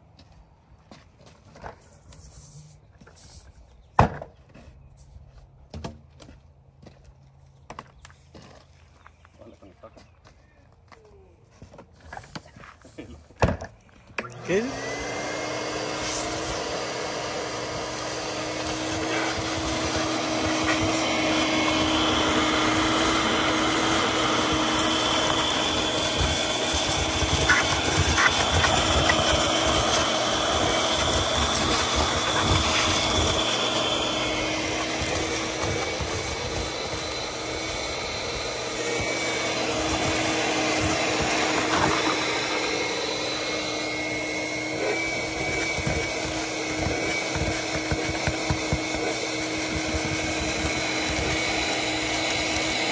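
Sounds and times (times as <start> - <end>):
shop vacuum sucking ash: 14.2 - 52.9.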